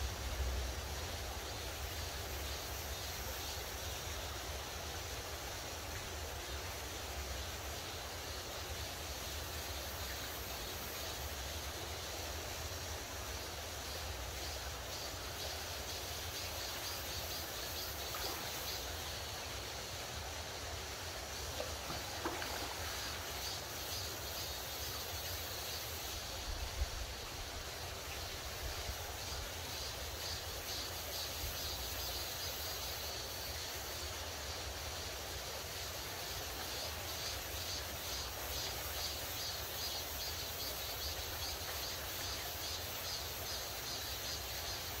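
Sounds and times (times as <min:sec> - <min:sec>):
insects chirping: 0:00.0 - 0:45.0
stream running over rocks: 0:00.0 - 0:45.0
stream rushing over rocks: 0:17.6 - 0:30.2.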